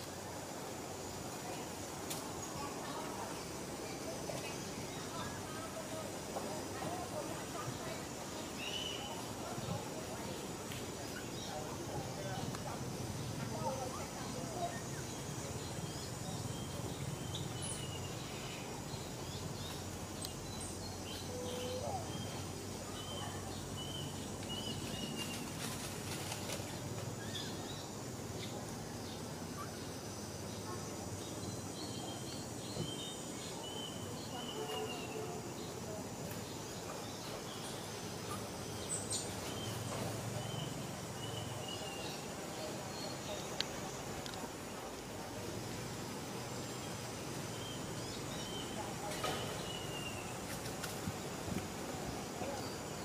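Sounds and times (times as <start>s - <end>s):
outdoor background noise: 0.0s - 53.0s
bird chirping: 11.0s - 25.6s, 36.4s - 44.8s.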